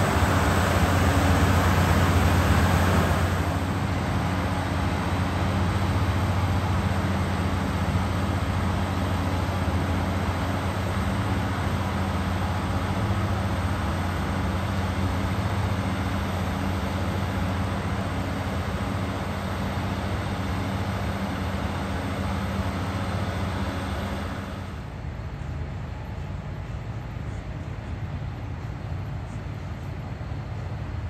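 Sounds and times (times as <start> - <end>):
diesel train engine humming: 0.0 - 31.0.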